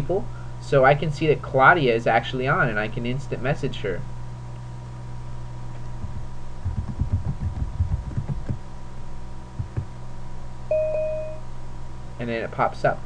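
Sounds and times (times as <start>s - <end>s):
steady electrical hum: 0.0s - 13.0s
computer keyboard typing: 6.0s - 8.6s
short electronic beep: 10.7s - 11.4s.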